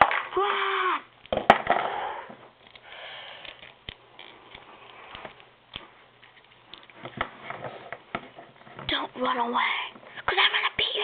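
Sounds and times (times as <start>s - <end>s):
breathy noise: 2.7s - 5.4s.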